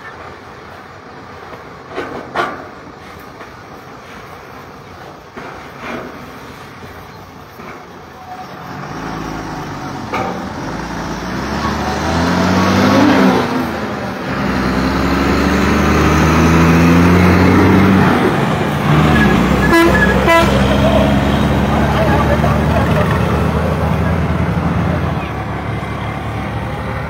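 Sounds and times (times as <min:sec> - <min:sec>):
vehicle engine running: 0:09.6 - 0:27.0.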